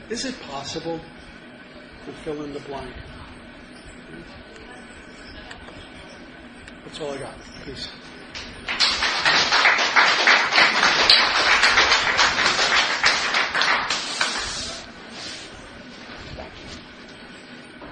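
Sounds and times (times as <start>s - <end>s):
audience applauding: 8.4s - 14.8s.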